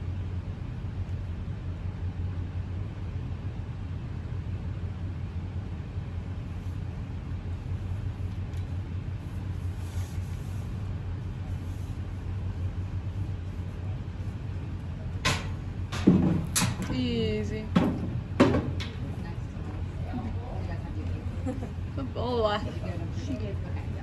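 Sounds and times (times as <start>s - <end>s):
steady low rumble: 0.0s - 24.0s
sharp knocks: 15.2s - 17.0s, 17.7s - 19.0s.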